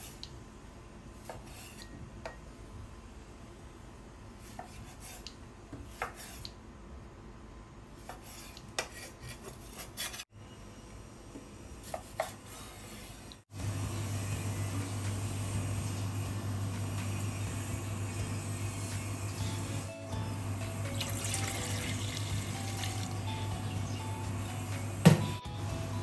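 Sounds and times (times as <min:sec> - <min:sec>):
steady low hum: 0:13.5 - 0:26.0.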